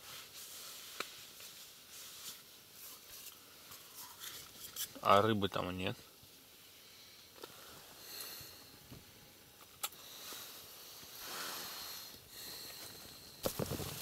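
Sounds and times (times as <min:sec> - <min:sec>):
clothing rustling: 0:00.0 - 0:04.9.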